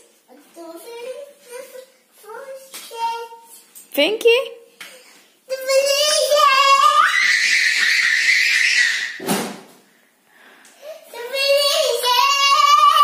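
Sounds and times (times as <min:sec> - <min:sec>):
child squealing: 0:06.6 - 0:09.2
thud: 0:09.2 - 0:09.8.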